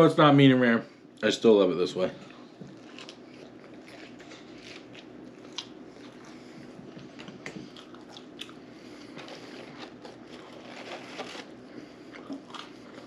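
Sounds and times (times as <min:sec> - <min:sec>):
person chewing: 0:02.7 - 0:13.0.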